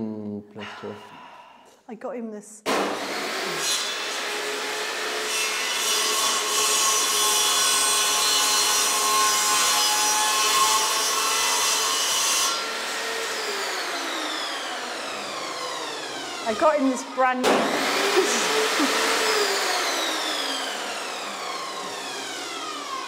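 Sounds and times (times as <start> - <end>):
table saw cutting wood: 2.7 - 23.0
saw motor whine spinning down: 13.4 - 23.0.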